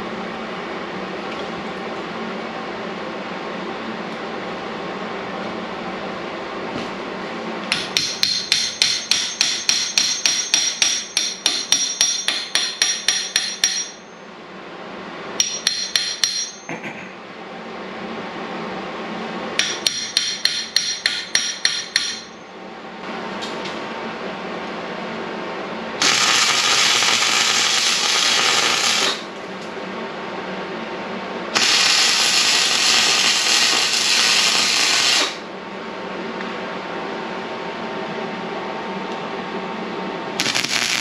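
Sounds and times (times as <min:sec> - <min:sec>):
hammer striking steel tubing: 0:07.7 - 0:14.1, 0:15.4 - 0:16.8, 0:19.6 - 0:22.4.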